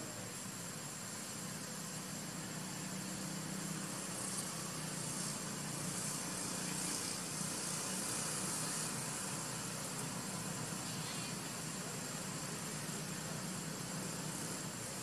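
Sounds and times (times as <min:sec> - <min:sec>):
even hiss: 0:00.0 - 0:15.0
faint high steady whine: 0:00.0 - 0:15.0.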